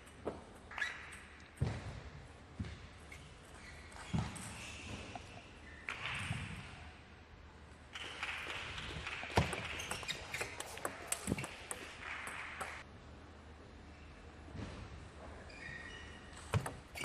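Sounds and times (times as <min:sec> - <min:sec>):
ping pong ball hitting bats and table: 0:08.0 - 0:12.8, 0:16.5 - 0:17.0.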